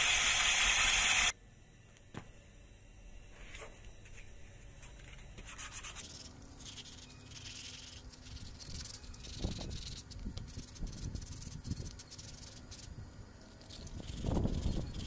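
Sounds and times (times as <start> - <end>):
sandpaper rubbing: 5.5 - 12.9, 13.5 - 15.0.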